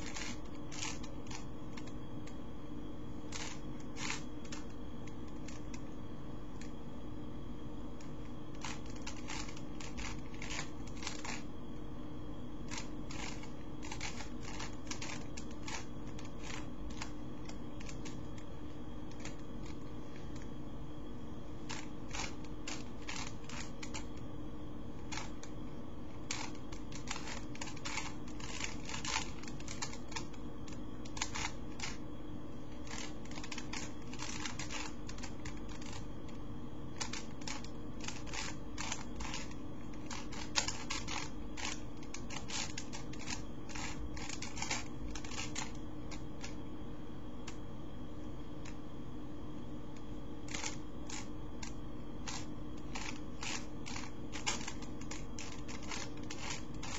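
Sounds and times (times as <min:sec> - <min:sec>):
puzzle cube clicking: 0:00.0 - 0:01.9, 0:03.3 - 0:05.8, 0:08.6 - 0:11.4, 0:12.7 - 0:17.1, 0:21.7 - 0:24.1, 0:26.3 - 0:30.4, 0:32.8 - 0:36.0, 0:37.0 - 0:46.6, 0:50.5 - 0:56.9
steady hum: 0:00.0 - 0:56.9.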